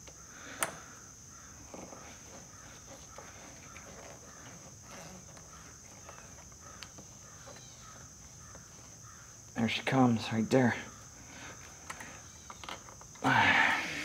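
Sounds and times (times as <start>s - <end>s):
crickets chirping: 0.0s - 14.0s
screwdriver scraping under rubber grip: 1.7s - 6.4s.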